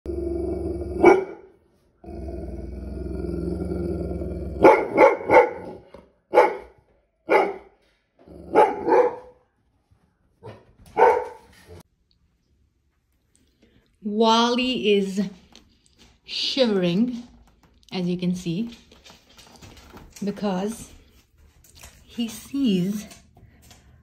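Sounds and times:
dog growling: 0:00.1 - 0:01.2, 0:02.0 - 0:05.0
dog barking sharply: 0:04.6 - 0:07.7, 0:08.5 - 0:09.4, 0:10.4 - 0:11.5.

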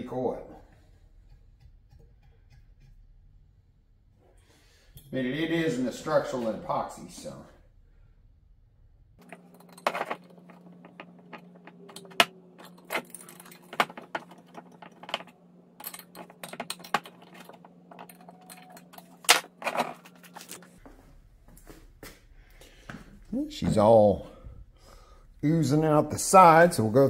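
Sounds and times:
steady low hum: 0:00.0 - 0:27.0
wrench and nuts clinking on metal: 0:09.2 - 0:19.9.

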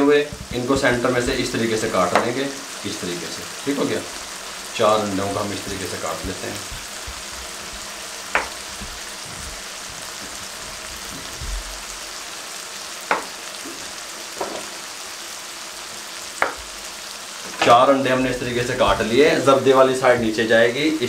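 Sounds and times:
gravy sizzling in a frying pan: 0:00.0 - 0:21.0
knife knocking on cutting board: 0:08.3 - 0:09.0, 0:13.1 - 0:13.8, 0:16.4 - 0:16.7.

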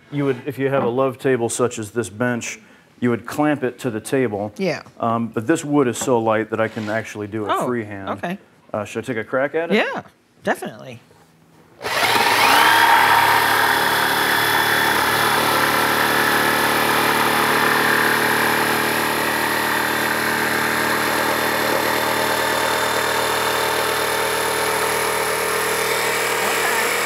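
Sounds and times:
jigsaw cutting wood: 0:11.8 - 0:27.0.

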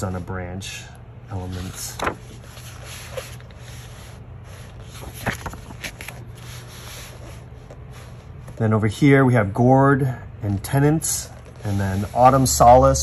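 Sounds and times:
book pages turning: 0:01.4 - 0:08.6, 0:11.2 - 0:13.0.

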